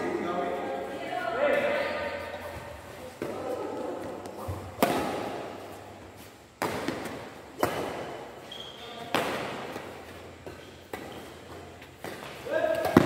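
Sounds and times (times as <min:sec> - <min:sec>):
racket hitting shuttlecock: 0:04.3 - 0:05.6, 0:06.6 - 0:08.4, 0:09.0 - 0:13.0.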